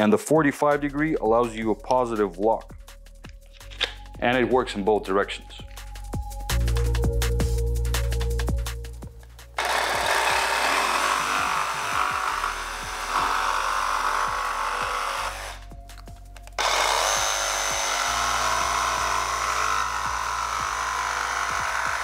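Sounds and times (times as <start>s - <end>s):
jigsaw cutting wood: 9.6s - 15.7s, 16.6s - 22.0s.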